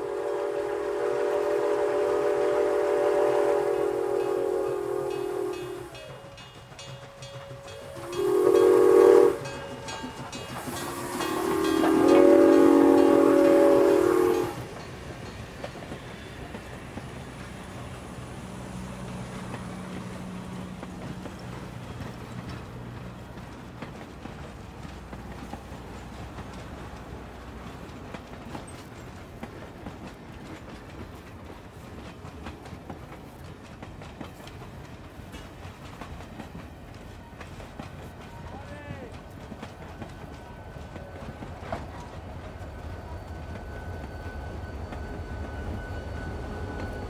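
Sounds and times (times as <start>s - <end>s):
locomotive whistle chord: 0.0s - 6.4s, 7.1s - 14.7s, 40.4s - 47.0s
faint train noise: 0.0s - 47.0s
wheels clattering on rails: 0.0s - 47.0s.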